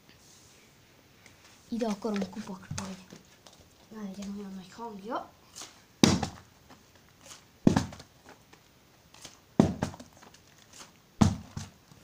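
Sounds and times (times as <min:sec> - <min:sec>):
plastic bottle thudding on carpet: 0:06.0 - 0:06.5, 0:07.6 - 0:08.1, 0:09.6 - 0:10.1, 0:11.2 - 0:11.8
bottle tumbling: 0:07.7 - 0:08.1.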